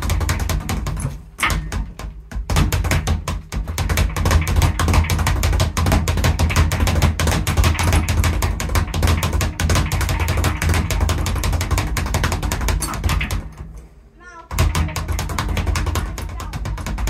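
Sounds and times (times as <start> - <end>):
speed bag rattling: 0.0 - 13.7, 14.5 - 17.0.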